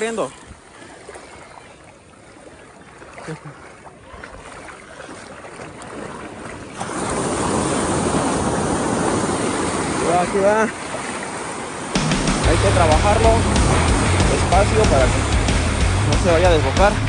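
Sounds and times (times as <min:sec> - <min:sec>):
breaking surf: 0:06.0 - 0:17.0
wind on microphone: 0:06.7 - 0:10.3.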